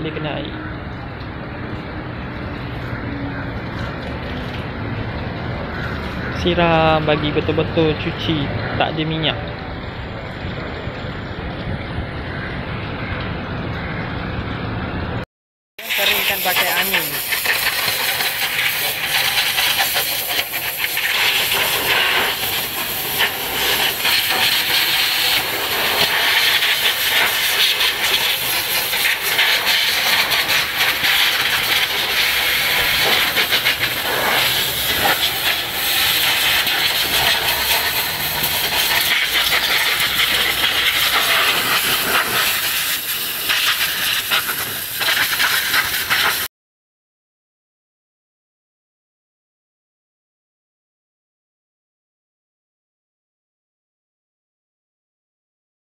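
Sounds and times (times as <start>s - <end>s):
spray gun hissing: 15.8s - 46.5s.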